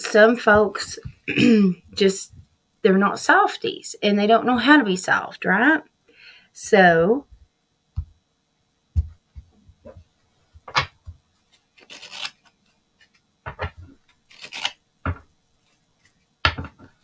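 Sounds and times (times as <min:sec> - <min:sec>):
cards shuffling swishes: 0:11.5 - 0:13.2.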